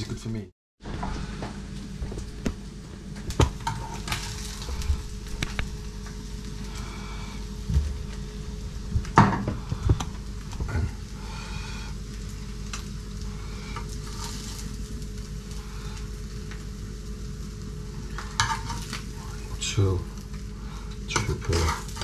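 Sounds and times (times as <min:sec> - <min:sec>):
meat sizzling in a pan: 0:02.8 - 0:22.0.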